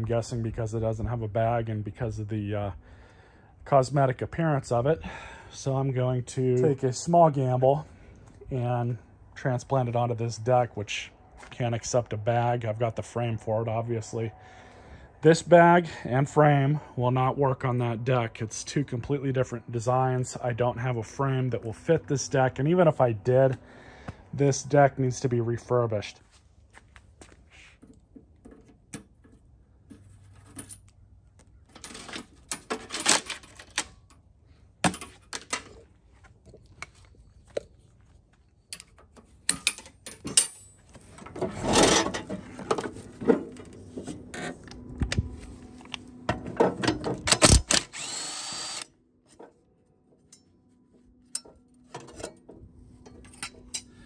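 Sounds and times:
metal tools clicking and rattling: 38.7 - 40.8, 51.3 - 54.0.

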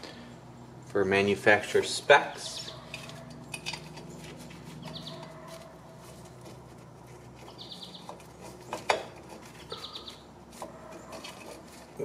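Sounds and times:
small bird chirping: 2.4 - 3.2, 4.8 - 5.3, 7.4 - 8.2, 9.7 - 10.3.

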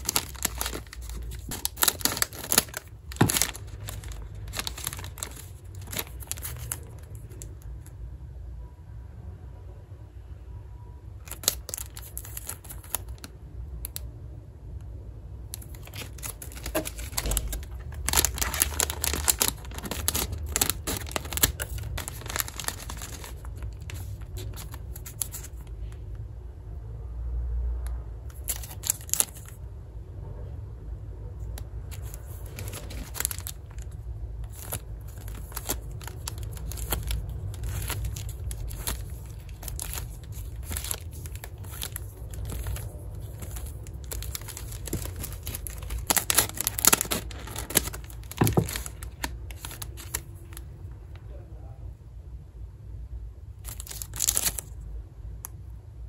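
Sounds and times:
plastic wrappers crinkling and tearing: 0.0 - 7.8, 11.2 - 13.3, 15.5 - 25.7, 28.3 - 29.6, 31.8 - 50.8, 53.6 - 54.8
low steady hum: 0.0 - 56.0.

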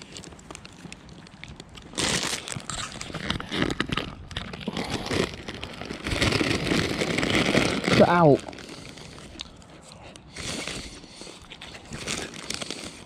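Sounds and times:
rustling through dry leaves: 4.4 - 9.4.

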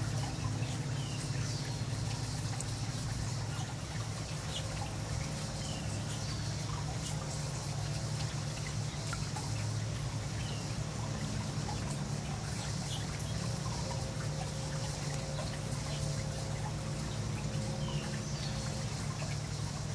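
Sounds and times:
low steady hum: 0.0 - 19.9
water trickling over stones: 0.0 - 19.9.

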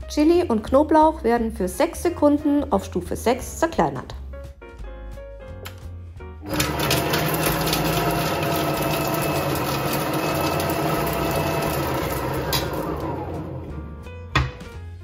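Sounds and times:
food processor chopping: 6.4 - 13.8.

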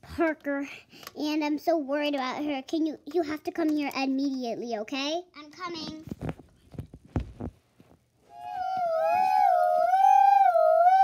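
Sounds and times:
child imitating a siren: 8.3 - 11.0.

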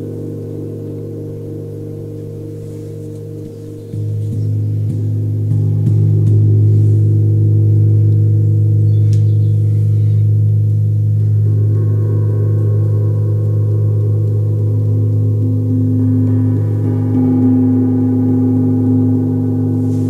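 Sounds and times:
deep gong hum: 0.0 - 20.0
gong struck with mallet: 11.2 - 20.0.

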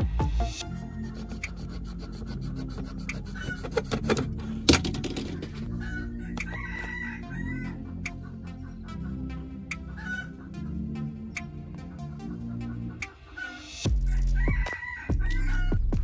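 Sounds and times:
soft background music: 0.0 - 16.0
rooster crowing: 0.7 - 1.4, 3.4 - 3.7, 5.7 - 7.9, 13.4 - 15.8
utility knife scraping plastic: 1.1 - 5.7
chickens clucking: 3.1 - 13.8.

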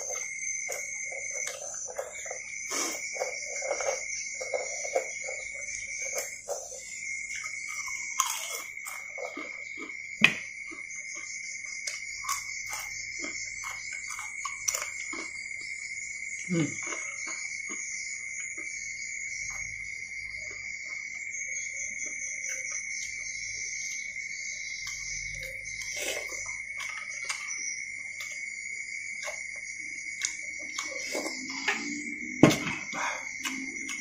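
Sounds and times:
slurping: 0.0 - 9.8, 25.7 - 27.5
chewing: 0.0 - 15.8, 16.4 - 18.8, 24.8 - 28.5, 29.2 - 32.2, 32.8 - 34.0
high-pitched insect trill: 0.0 - 34.0.

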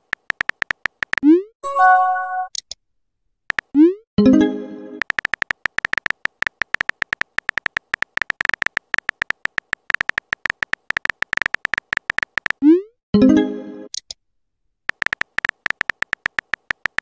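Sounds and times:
keyboard typing clicks: 5.0 - 12.6, 14.9 - 17.0.

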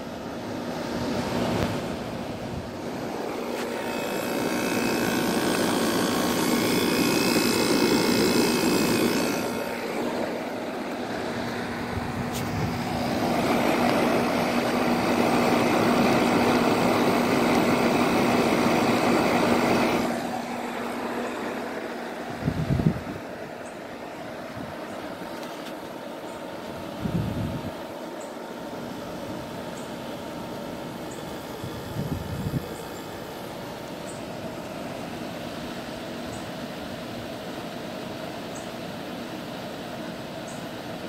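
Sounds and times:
air conditioner fan rushing: 0.0 - 41.0
steady hum: 0.0 - 41.0.

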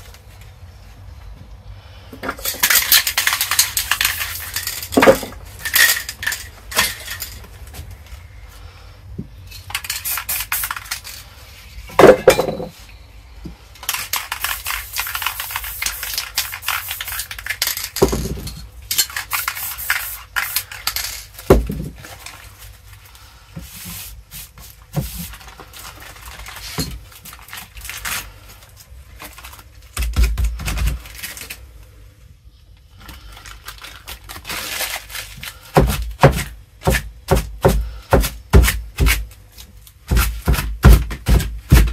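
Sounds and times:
spray cans rattling when shaken: 2.2 - 7.8, 9.5 - 11.4, 13.8 - 22.8, 23.8 - 28.3
spray paint hissing: 9.7 - 11.2, 13.9 - 18.1, 19.0 - 21.2.

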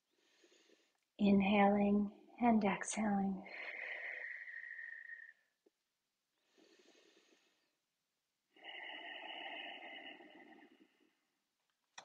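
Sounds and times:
person breathing: 0.0 - 1.1, 3.5 - 5.4, 6.4 - 7.8, 8.5 - 11.4.

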